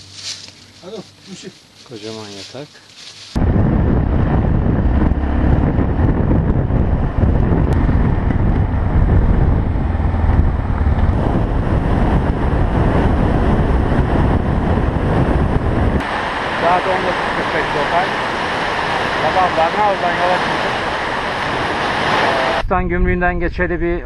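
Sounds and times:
road noise: 0.0 - 22.6
wind over microphone: 3.0 - 24.0
motorcycle engine: 3.4 - 22.6.

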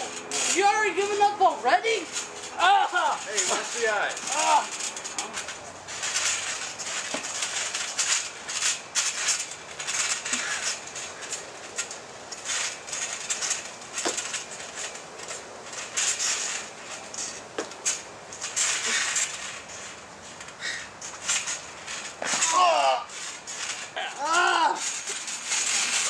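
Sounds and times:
trampoline springs creaking and rattling: 0.0 - 26.0.

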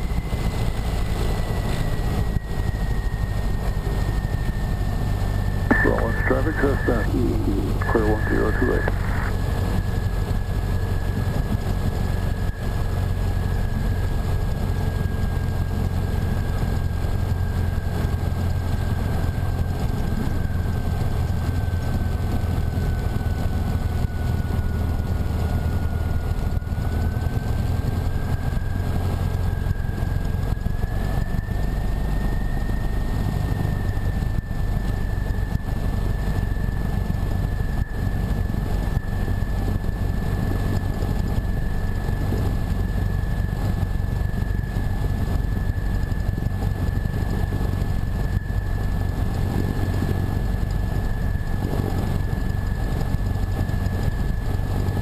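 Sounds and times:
light aircraft engine and propeller: 0.0 - 55.0.

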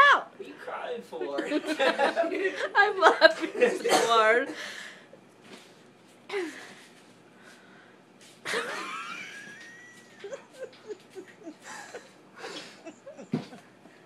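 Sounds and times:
person laughing with wheezing gasps: 8.5 - 13.6.

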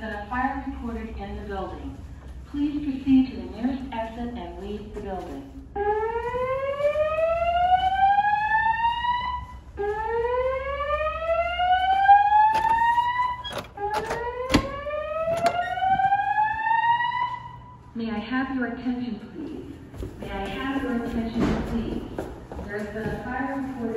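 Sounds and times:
fire alarm whoop tone: 5.8 - 17.8.

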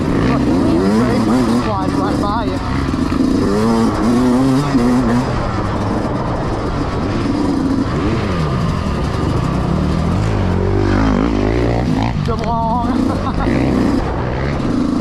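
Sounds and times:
dirt bike engine revving: 0.0 - 15.0.

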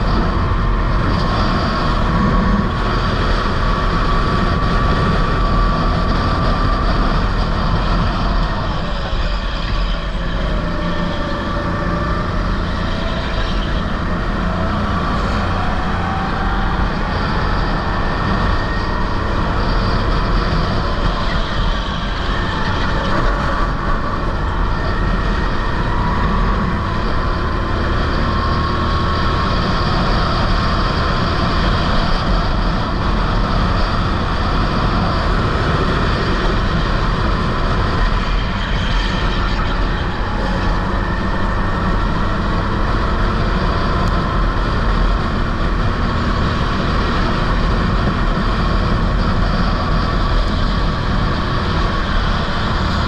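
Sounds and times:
kart engine revving: 0.0 - 53.0.

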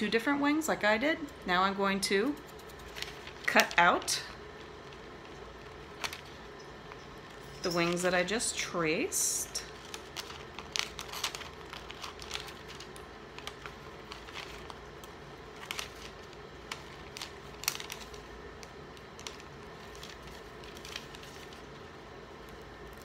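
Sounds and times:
paper crinkling: 2.4 - 6.9, 9.7 - 23.0.

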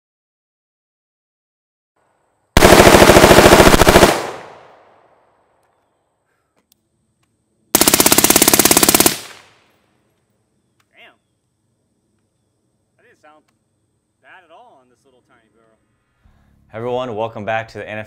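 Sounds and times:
suppressed automatic rifle bursts: 2.6 - 4.7, 7.7 - 9.6.

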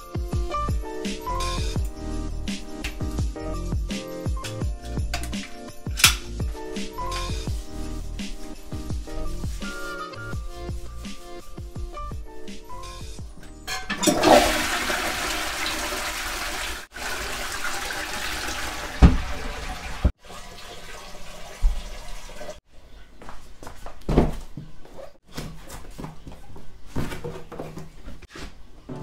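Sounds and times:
toilet flushing: 13.7 - 22.6.

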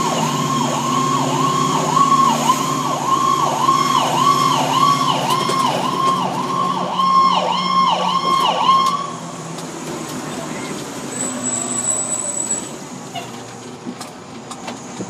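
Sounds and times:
electronic siren yelping: 0.0 - 9.2
truck engine drone: 0.0 - 15.0.

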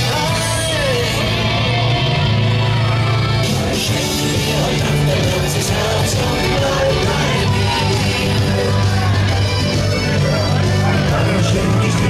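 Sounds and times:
carnival party music: 0.0 - 12.0
person singing: 3.5 - 12.0.

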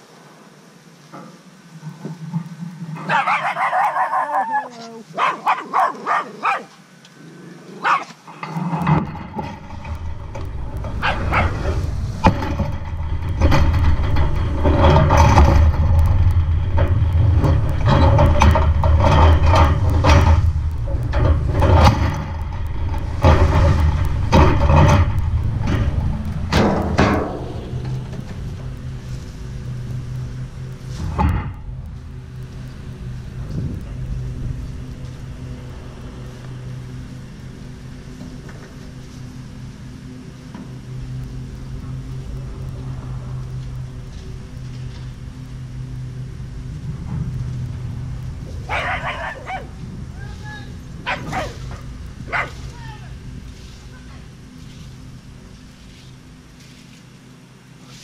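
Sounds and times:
dog barking: 3.1 - 6.8, 7.8 - 8.1, 11.0 - 11.6, 48.7 - 49.7, 51.0 - 51.6, 52.3 - 52.6
low rumble with rattling knocks: 8.2 - 57.7.

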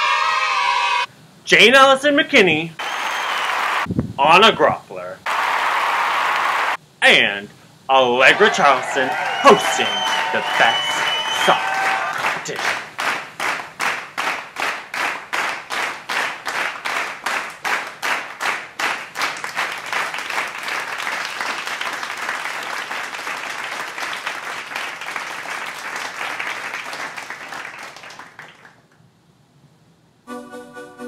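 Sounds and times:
crowd applause: 2.8 - 3.9, 5.3 - 6.8, 7.9 - 28.8
crowd clapping in unison: 2.8 - 3.9, 5.3 - 6.8, 8.2 - 29.0.

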